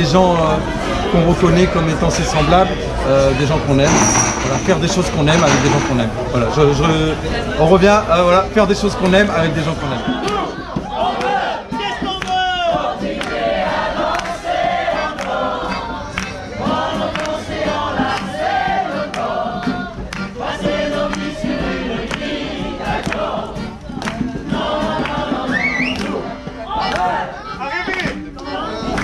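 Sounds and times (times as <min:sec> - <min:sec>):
crowd singing in chorus: 0:00.4 - 0:27.5, 0:28.2 - 0:29.0
hands clapping along: 0:03.9 - 0:06.1, 0:09.0 - 0:29.0.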